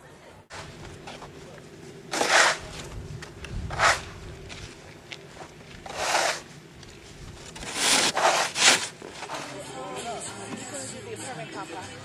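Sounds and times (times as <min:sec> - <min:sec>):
snow shovels scraping: 0:02.1 - 0:02.9, 0:03.7 - 0:04.7, 0:05.8 - 0:06.6, 0:07.4 - 0:09.8.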